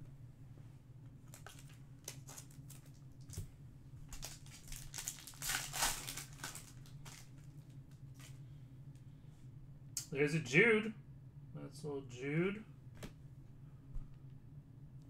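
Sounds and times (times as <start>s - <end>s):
faint low hum: 0.0s - 15.0s
wrapper tearing and crinkling: 1.3s - 3.4s, 4.1s - 8.4s.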